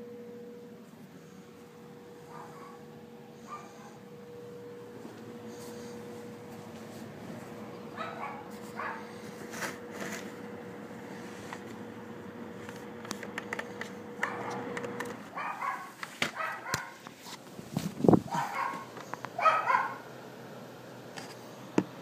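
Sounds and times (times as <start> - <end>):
dog yapping: 2.3 - 2.8, 3.4 - 4.0, 8.0 - 9.1, 15.3 - 17.0, 18.3 - 20.0.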